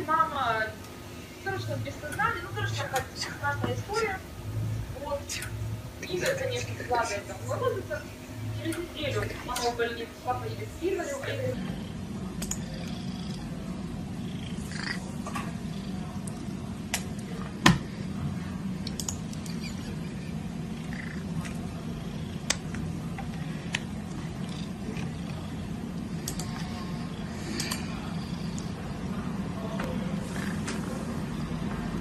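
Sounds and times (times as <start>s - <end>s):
cat purring: 8.8s - 18.4s, 19.3s - 29.3s, 30.1s - 32.0s
sharp clicks: 12.4s - 12.6s, 18.8s - 19.5s, 26.2s - 26.6s.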